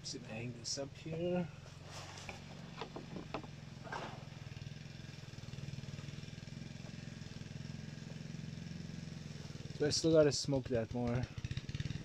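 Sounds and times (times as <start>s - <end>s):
small engine humming: 0.0s - 12.0s
short rustle: 1.7s - 2.5s
light knocks: 2.2s - 4.2s.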